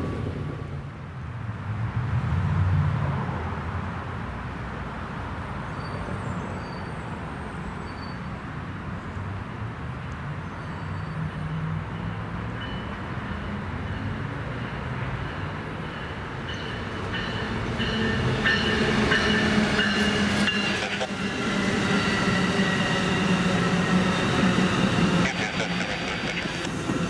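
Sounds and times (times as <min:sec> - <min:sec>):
train rumbling past: 0:00.0 - 0:04.0, 0:09.5 - 0:27.0.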